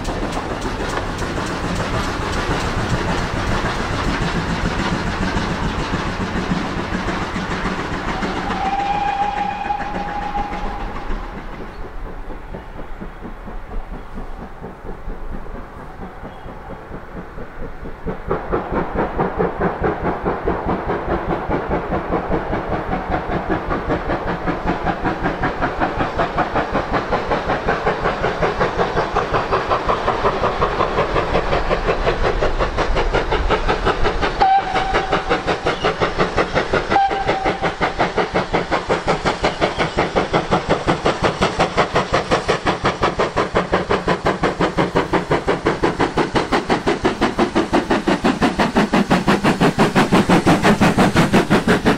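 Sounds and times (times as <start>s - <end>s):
steam locomotive exhaust beats: 0.0s - 51.9s
steam whistle toot: 8.1s - 11.2s, 34.4s - 35.3s, 36.9s - 37.8s.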